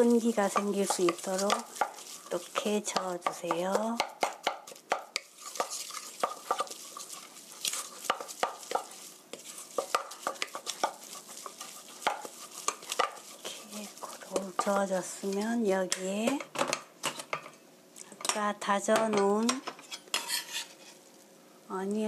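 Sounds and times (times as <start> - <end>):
spatula knocking in metal bowl: 0.4 - 6.8.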